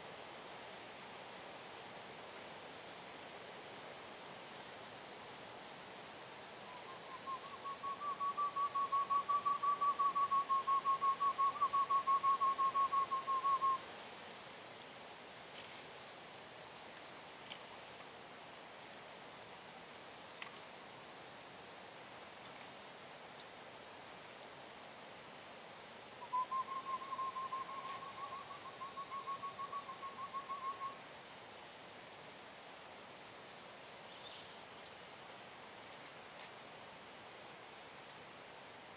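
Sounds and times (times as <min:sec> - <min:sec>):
bird whistled call notes: 0:06.7 - 0:13.8, 0:26.2 - 0:31.0.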